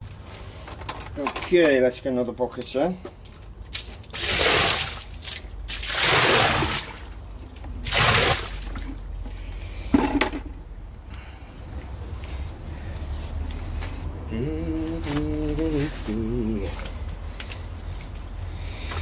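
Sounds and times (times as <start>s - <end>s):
water splashing into drain: 3.7s - 7.2s, 7.8s - 9.0s.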